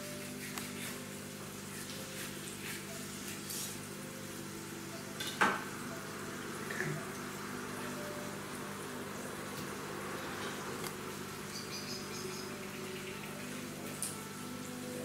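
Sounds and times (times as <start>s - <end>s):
faint hum: 3.9s - 15.0s.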